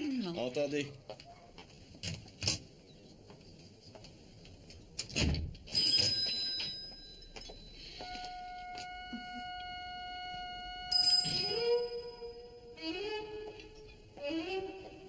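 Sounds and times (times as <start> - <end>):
small bell ringing: 5.7 - 8.0, 10.9 - 12.6
steady held tone: 6.5 - 14.5.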